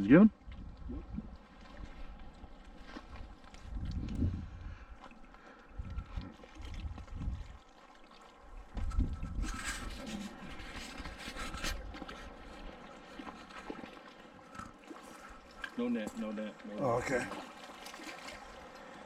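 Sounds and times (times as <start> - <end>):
water splashing and hissing: 1.0 - 19.0
wind buffeting microphone: 3.6 - 5.0, 5.7 - 7.6, 8.6 - 12.0.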